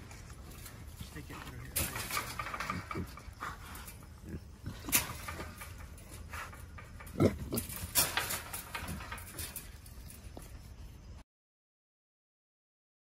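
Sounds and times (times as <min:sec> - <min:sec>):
hogs grunting: 0:00.9 - 0:08.2.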